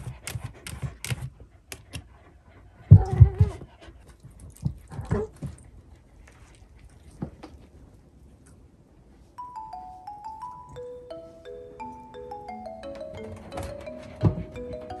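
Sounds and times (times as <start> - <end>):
marimba-like music: 9.4 - 15.0
light knocks and steps: 11.2 - 15.0.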